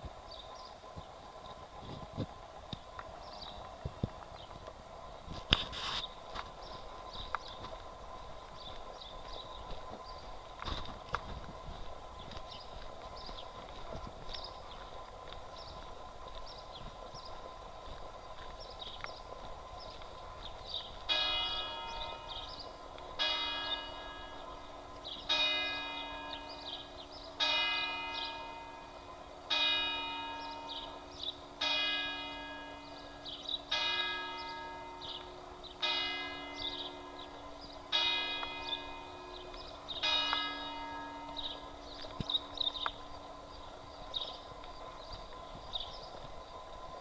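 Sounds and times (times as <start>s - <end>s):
church bell tolling: 21.1s - 43.3s.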